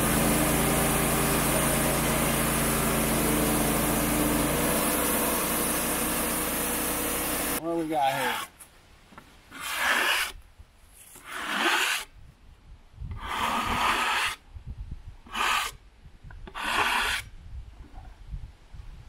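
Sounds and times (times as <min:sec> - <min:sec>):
hand scraper scraping wood: 0:00.0 - 0:08.6, 0:09.5 - 0:10.4, 0:11.0 - 0:12.1, 0:13.1 - 0:14.4, 0:15.3 - 0:15.8, 0:16.4 - 0:17.3.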